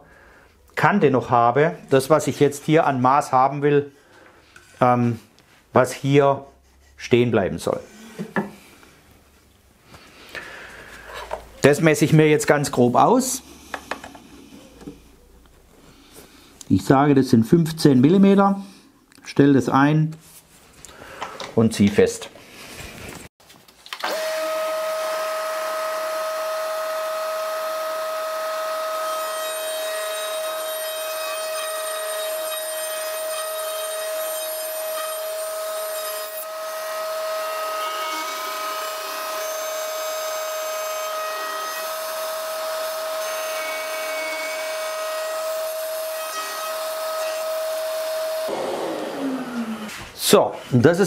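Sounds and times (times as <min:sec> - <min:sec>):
router whining: 0:23.9 - 0:45.8, 0:46.4 - 0:50.2
dust extractor rushing: 0:48.5 - 0:50.2.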